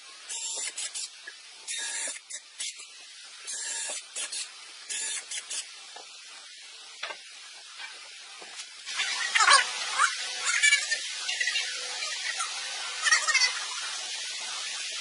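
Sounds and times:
cordless drill boring wood: 1.7 - 2.2, 3.5 - 5.6.

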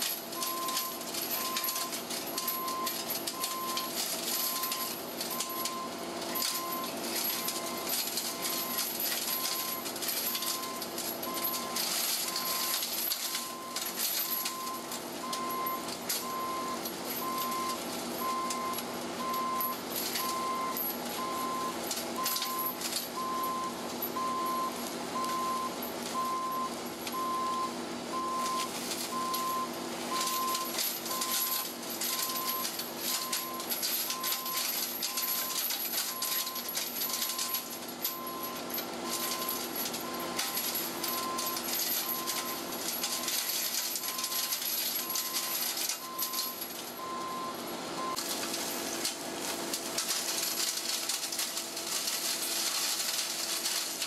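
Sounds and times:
diesel excavator running: 0.0 - 54.0
short warning beeps: 10.4 - 43.4.

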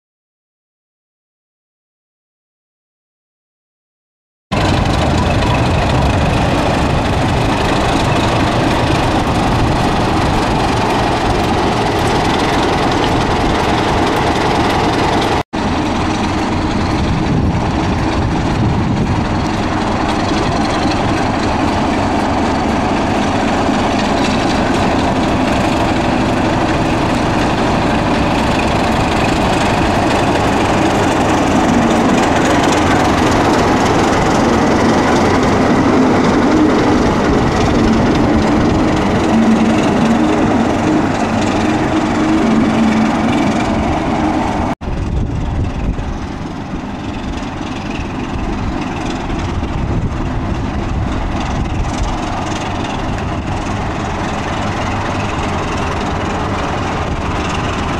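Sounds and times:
diesel locomotive engine running: 4.5 - 57.9.

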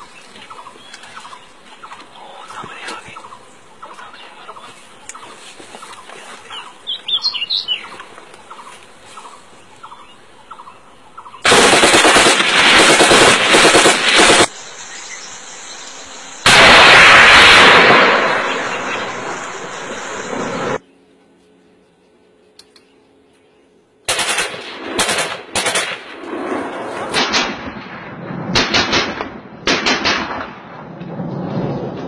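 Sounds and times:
bird calling: 0.0 - 11.4
loud blast: 11.4 - 14.5, 16.4 - 20.8
rapid gunfire: 11.4 - 14.5, 24.1 - 27.8, 28.5 - 30.5.

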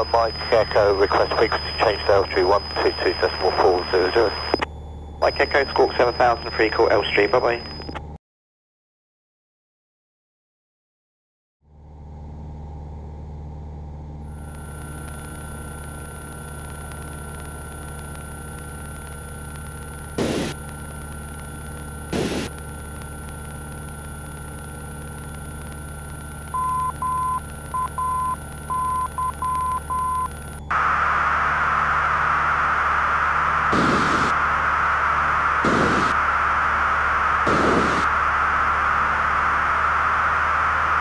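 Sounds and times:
radio static hiss: 0.0 - 8.0, 20.2 - 20.6, 22.1 - 22.6, 30.7 - 41.0
aircraft engine droning: 30.4 - 41.0.

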